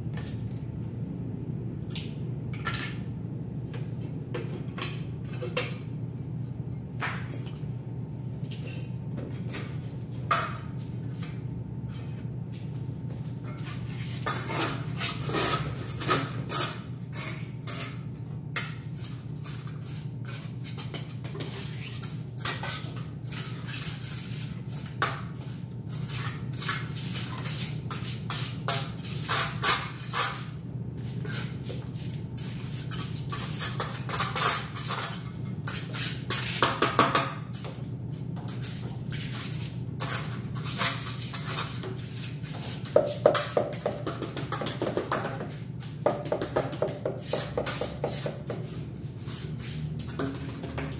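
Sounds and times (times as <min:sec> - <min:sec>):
trowel spreading mortar on tile: 0:26.0 - 0:30.5, 0:38.5 - 0:50.9.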